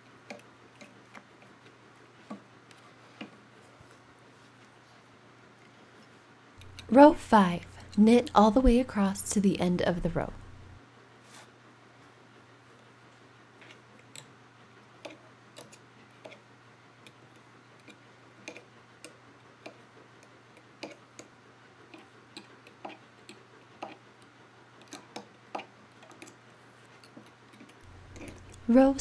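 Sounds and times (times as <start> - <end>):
knitting tool clicking on loom pegs: 17.8 - 19.8, 20.8 - 21.3, 21.9 - 24.0.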